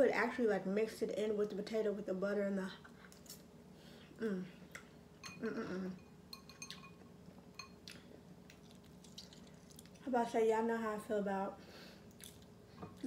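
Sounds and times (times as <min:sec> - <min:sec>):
metal fork clinking on dishes: 0:05.2 - 0:05.4, 0:06.0 - 0:07.0, 0:07.6 - 0:07.8
person humming while eating: 0:05.4 - 0:06.0.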